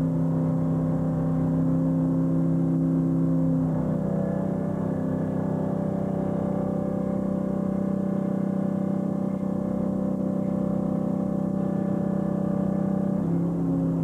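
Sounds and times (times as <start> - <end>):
boat engine droning hum: 0.0 - 14.0.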